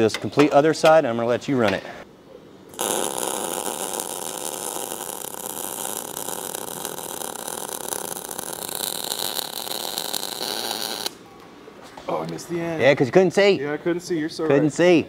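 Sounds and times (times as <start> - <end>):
welding arc sizzling crackle: 2.7 - 11.2.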